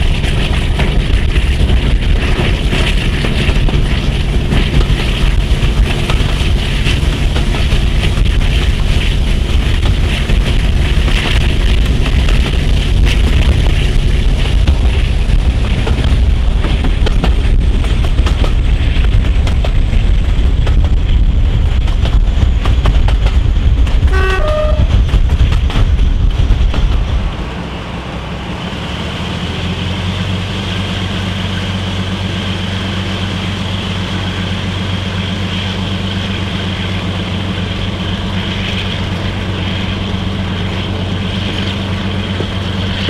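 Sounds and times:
diesel locomotive engines: 0.0s - 43.0s
wheels running on rails: 0.0s - 43.0s
wind rush: 0.0s - 43.0s
train horn: 24.0s - 25.0s.

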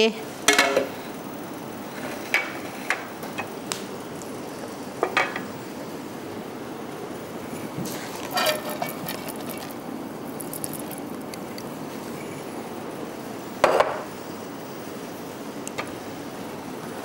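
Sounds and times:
metal utensils clattering on cookware: 7.9s - 9.8s.

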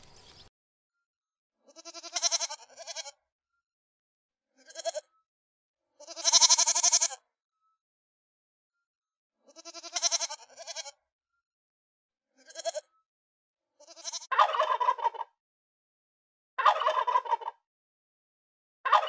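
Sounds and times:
goat kids bleating: 1.7s - 3.1s, 4.6s - 5.0s, 6.0s - 7.2s, 9.5s - 10.9s, 12.4s - 12.8s, 13.8s - 14.3s
turkey gobbling: 14.3s - 15.3s, 16.6s - 17.6s.

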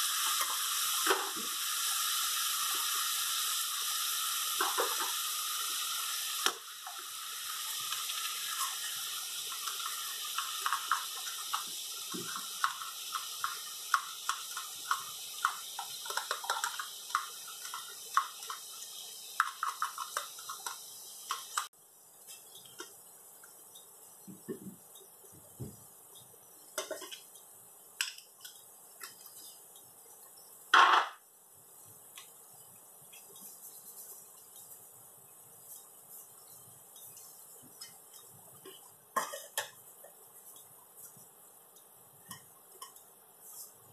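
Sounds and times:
pot simmering with small pops: 0.0s - 43.9s
utensils knocking on pot: 9.5s - 18.6s.

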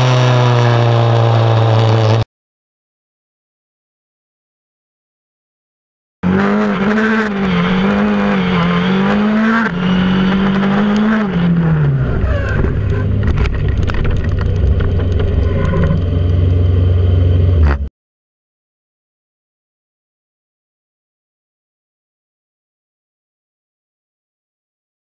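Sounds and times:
race car engine pulling hard: 0.0s - 2.3s, 6.2s - 17.9s
low rumble with knocks and scrapes: 11.8s - 17.9s.

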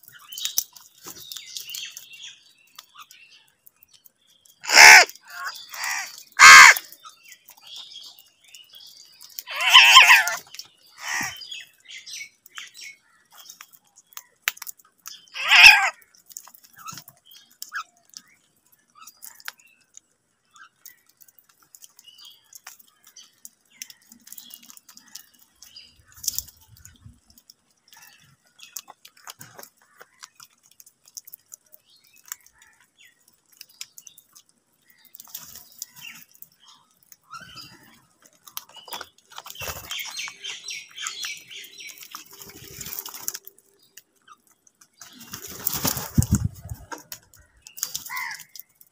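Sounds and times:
beaks pecking at food: 0.0s - 48.9s
crows cawing: 4.6s - 6.9s, 9.5s - 10.4s, 11.0s - 11.4s, 15.4s - 16.0s, 48.0s - 48.6s.

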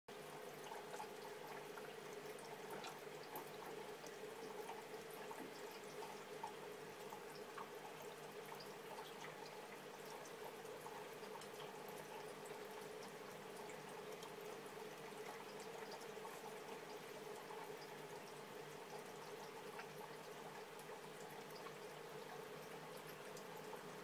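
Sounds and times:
aquarium water trickling: 0.1s - 24.0s
water drips and pops: 0.6s - 7.8s.

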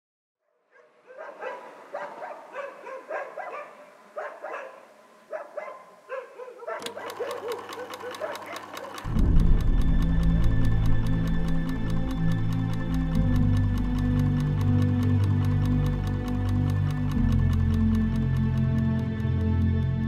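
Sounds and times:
dogs barking: 0.7s - 9.0s
knitting needles clicking: 6.7s - 20.0s.

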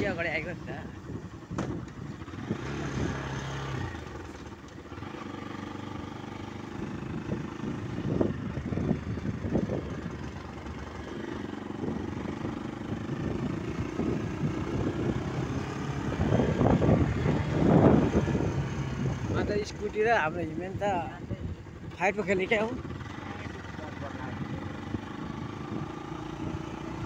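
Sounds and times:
road noise: 0.0s - 27.0s
vehicle engine hum: 0.0s - 27.0s.

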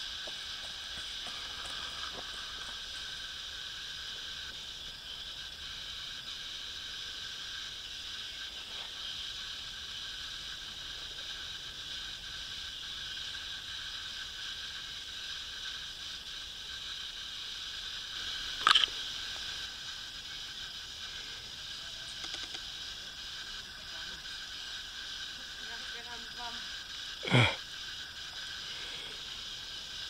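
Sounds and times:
background hiss: 0.0s - 30.0s
faint ticks: 22.0s - 22.7s.

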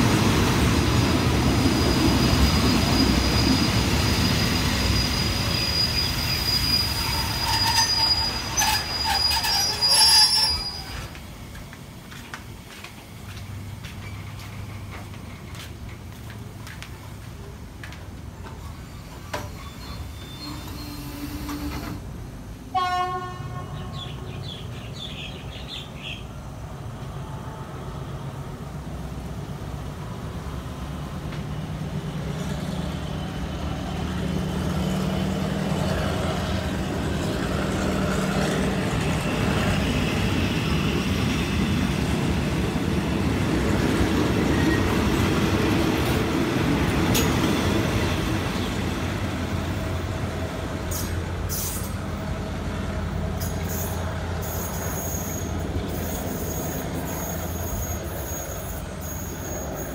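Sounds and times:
train wheels rumbling on rails: 0.0s - 22.8s, 28.4s - 59.9s
locomotive horn toot: 22.7s - 24.2s.

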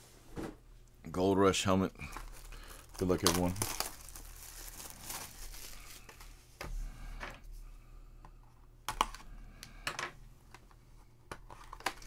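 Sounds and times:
plastic wrap crinkling and tearing: 2.0s - 6.4s.

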